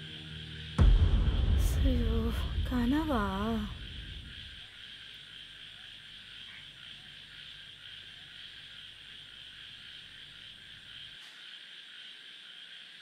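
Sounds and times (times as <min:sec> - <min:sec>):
low hum: 0:00.0 - 0:04.7
frogs and insects chorus: 0:00.0 - 0:13.0.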